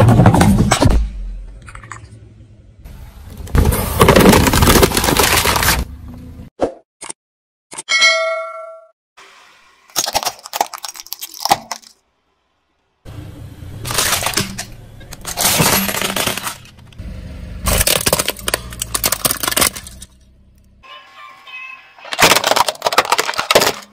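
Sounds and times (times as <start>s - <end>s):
plastic toys cracking under tyre: 4.0s - 5.9s, 9.9s - 12.0s, 17.7s - 20.2s, 22.1s - 23.9s.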